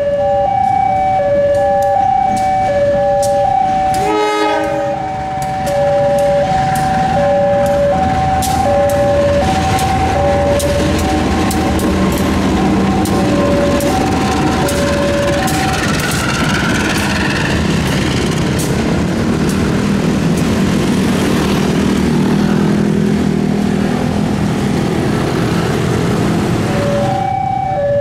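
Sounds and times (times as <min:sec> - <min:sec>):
two-tone level crossing alarm: 0:00.0 - 0:17.6, 0:26.6 - 0:28.0
diesel locomotive engine drone: 0:00.0 - 0:28.0
motorcycles passing: 0:04.5 - 0:27.3.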